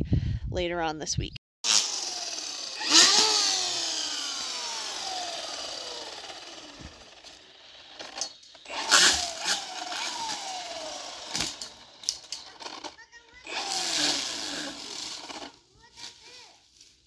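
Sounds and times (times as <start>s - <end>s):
string trimmer motor whining: 1.6s - 16.3s.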